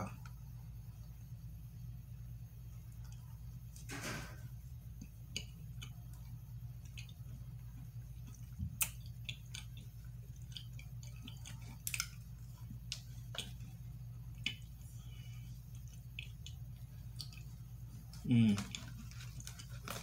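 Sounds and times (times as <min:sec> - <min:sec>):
steady low hum: 0:00.0 - 0:20.0
person chewing: 0:04.7 - 0:20.0.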